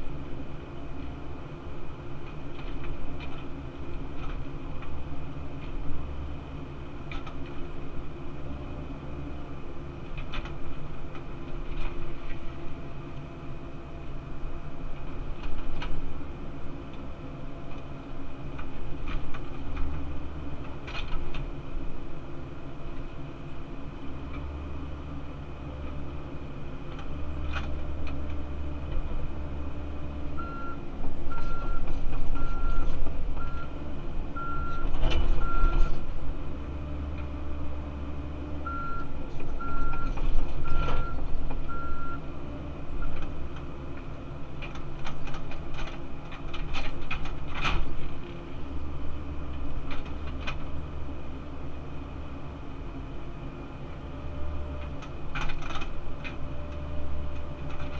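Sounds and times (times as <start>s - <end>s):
excavator diesel engine and hydraulics: 0.0s - 57.9s
reversing alarm beeping: 30.4s - 33.7s, 34.4s - 36.0s, 38.6s - 42.2s.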